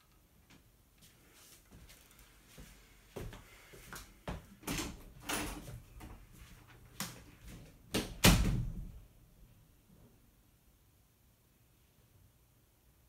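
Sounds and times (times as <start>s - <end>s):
footsteps on wooden floor: 1.0s - 4.6s.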